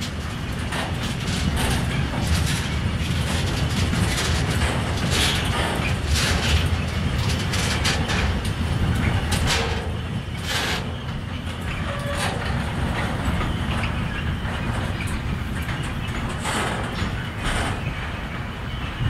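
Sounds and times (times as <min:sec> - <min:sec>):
freight train rolling past: 0:00.0 - 0:19.0
wheels clacking over rail joints: 0:00.0 - 0:19.0.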